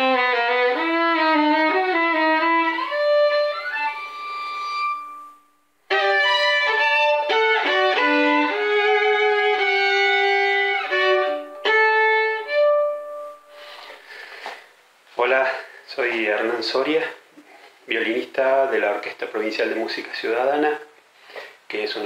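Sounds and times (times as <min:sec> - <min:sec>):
solo violin tango: 0:00.0 - 0:13.6.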